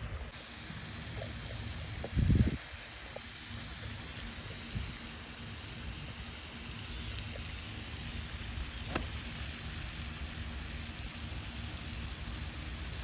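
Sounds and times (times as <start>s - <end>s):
light rain falling: 0.0s - 13.0s
wind rumble on microphone: 1.2s - 3.2s, 4.4s - 5.1s.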